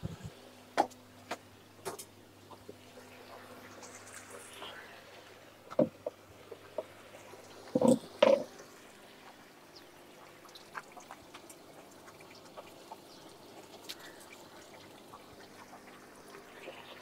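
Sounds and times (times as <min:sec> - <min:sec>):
water dripping and trickling: 0:00.1 - 0:17.0
small ticks: 0:09.2 - 0:17.0.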